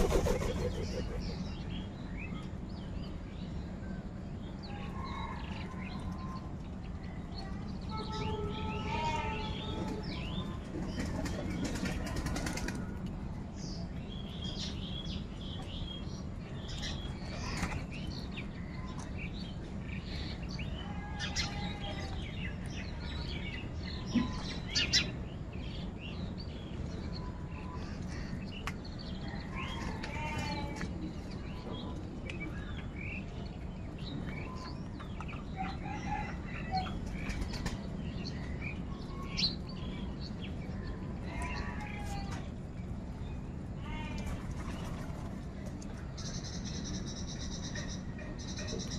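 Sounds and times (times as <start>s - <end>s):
wings flapping: 0.0s - 1.4s
low background noise: 0.0s - 48.9s.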